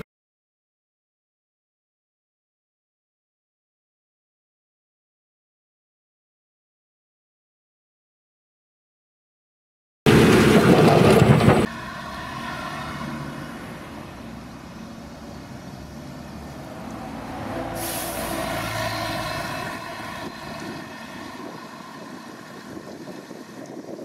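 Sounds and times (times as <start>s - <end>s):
loud burst of noise: 10.1s - 14.2s
excavator engines and hydraulics: 10.1s - 24.0s.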